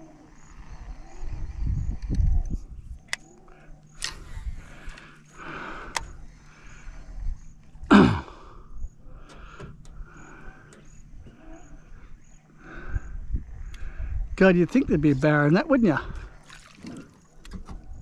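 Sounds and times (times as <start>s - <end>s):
insects trilling: 0.0s - 18.0s.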